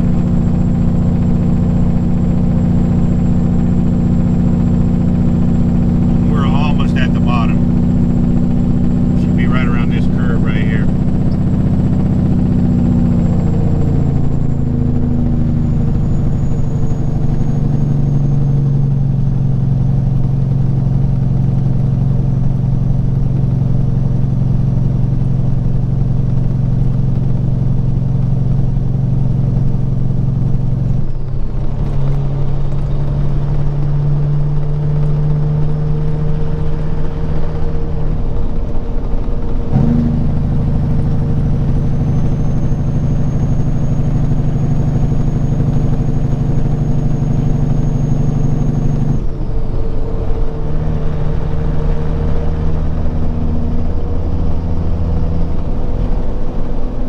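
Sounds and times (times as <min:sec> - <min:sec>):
truck diesel engine running: 0:00.0 - 0:57.0.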